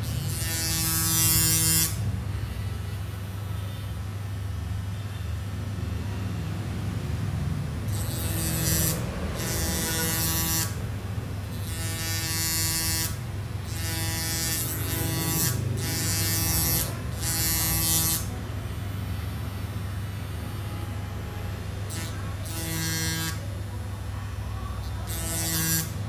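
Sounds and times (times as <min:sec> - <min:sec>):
electric rotary grinder whining: 0:07.9 - 0:10.8.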